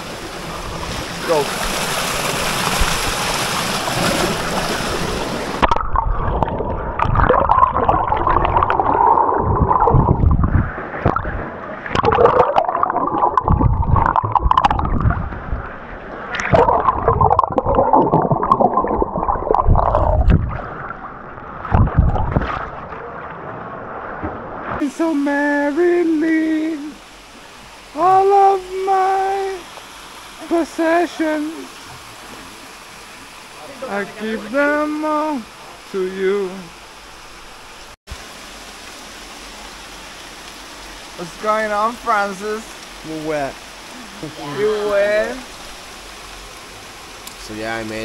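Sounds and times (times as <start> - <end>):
river water rushing over rock: 0.0 - 15.1
muffled underwater gurgling: 5.0 - 22.9.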